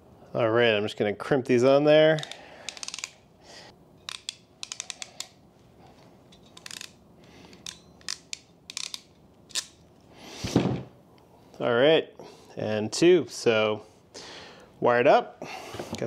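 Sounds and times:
ratcheting wire crimper clicking: 0:02.2 - 0:03.2, 0:04.0 - 0:05.4, 0:06.4 - 0:09.8.

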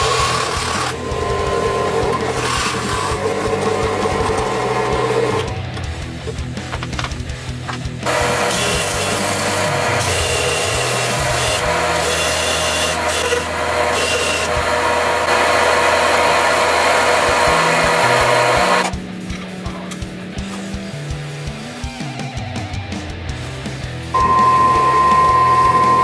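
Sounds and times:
held bass notes: 0:00.0 - 0:11.9, 0:14.5 - 0:26.0
belt grinder grinding steel: 0:00.0 - 0:19.0, 0:24.2 - 0:26.0
guitar: 0:00.0 - 0:26.0.

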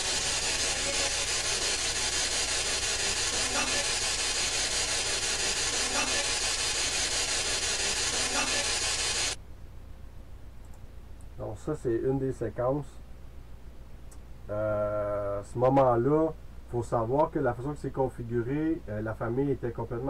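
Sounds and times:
loud steady hiss: 0:00.0 - 0:09.4.

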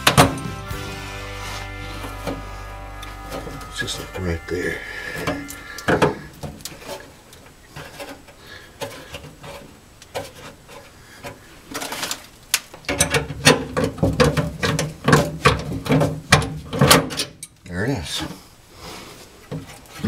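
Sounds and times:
clicks and scrapes of metal parts: 0:05.2 - 0:12.3.

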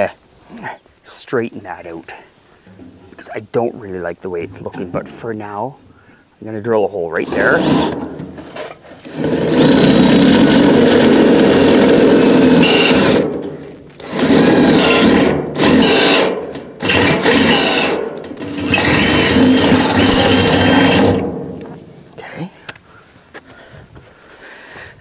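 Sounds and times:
cordless drill boring through steel: 0:07.2 - 0:21.3.

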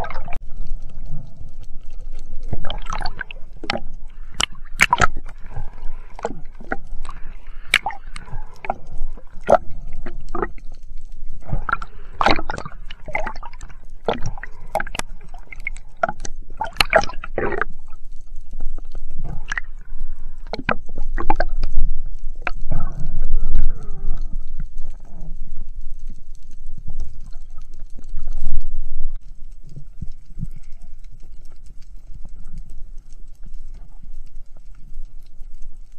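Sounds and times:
gurgling water: 0:00.0 - 0:35.9
underwater clicks and knocks: 0:01.1 - 0:10.8, 0:11.4 - 0:17.8, 0:20.4 - 0:25.8.

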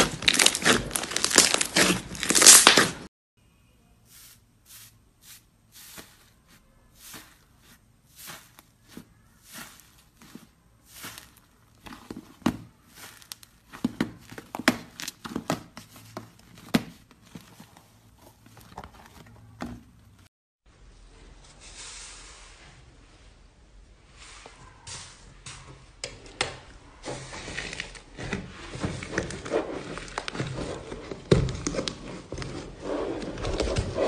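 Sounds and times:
slime crackling and squelching: 0:00.0 - 0:03.1, 0:05.2 - 0:19.1
hand swishing slime: 0:04.1 - 0:11.5.

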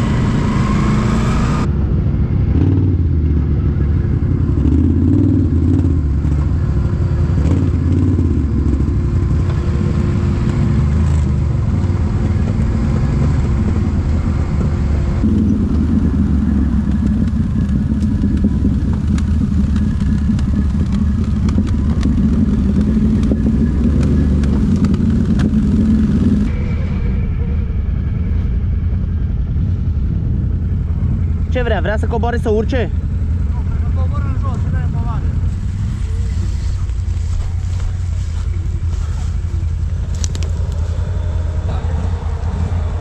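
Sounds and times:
quad bike engine running: 0:00.0 - 0:43.0
sharp clicks and rattles: 0:15.2 - 0:26.5, 0:36.8 - 0:41.2.

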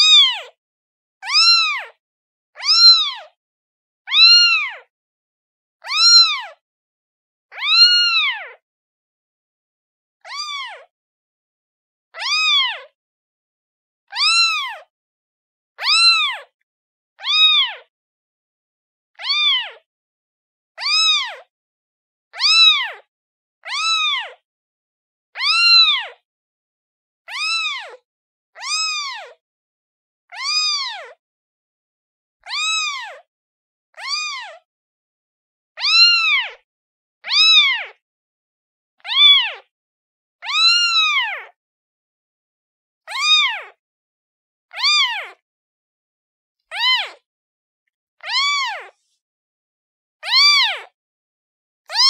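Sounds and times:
kitten meowing: 0:00.0 - 0:00.4, 0:01.2 - 0:02.0, 0:02.6 - 0:03.2, 0:04.1 - 0:04.8, 0:05.8 - 0:06.5, 0:07.5 - 0:08.6, 0:10.3 - 0:10.8, 0:12.2 - 0:12.8, 0:14.2 - 0:14.9, 0:15.8 - 0:16.5, 0:17.2 - 0:17.9, 0:19.2 - 0:19.8, 0:20.8 - 0:21.5, 0:22.4 - 0:23.0, 0:23.6 - 0:24.4, 0:25.4 - 0:26.1, 0:27.3 - 0:28.0, 0:28.6 - 0:29.4, 0:30.3 - 0:31.1, 0:32.4 - 0:33.2, 0:34.0 - 0:34.6, 0:35.8 - 0:36.6, 0:37.2 - 0:38.0, 0:39.0 - 0:39.6, 0:40.4 - 0:41.6, 0:43.1 - 0:43.8, 0:44.7 - 0:45.4, 0:46.7 - 0:47.2, 0:48.2 - 0:48.9, 0:50.2 - 0:51.0.

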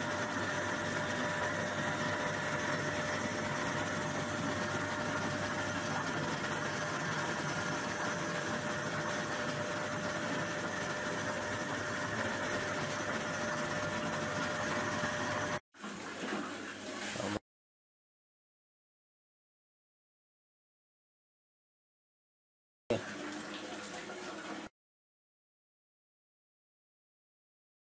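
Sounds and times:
washing machine motor humming: 0:00.0 - 0:17.4, 0:22.9 - 0:24.7.

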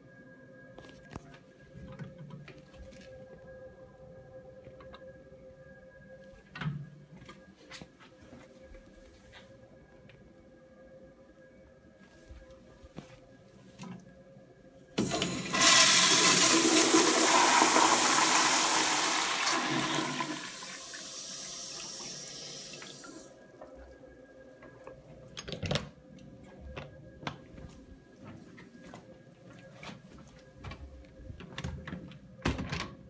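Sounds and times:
toilet flushing: 0:15.0 - 0:23.4.

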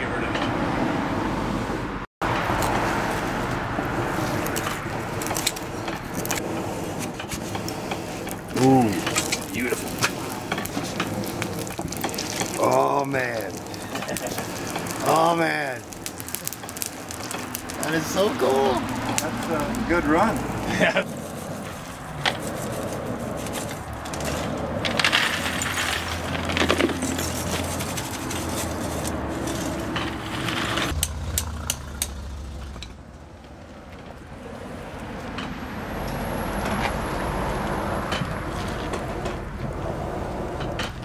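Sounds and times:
steady rushing background: 0:14.9 - 0:31.0.

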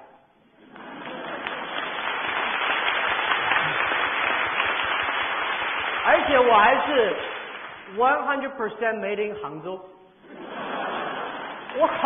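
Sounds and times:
audience applauding: 0:00.6 - 0:07.9.

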